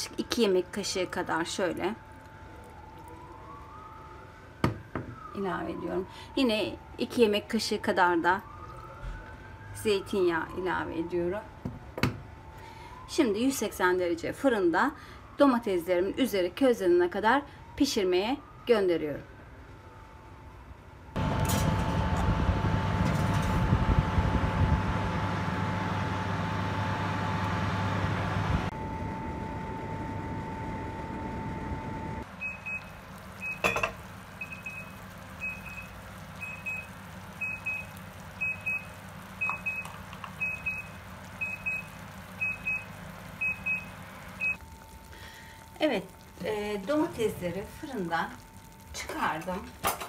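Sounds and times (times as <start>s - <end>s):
oven fan hum: 21.2s - 50.0s
oven timer beeps: 31.4s - 45.7s.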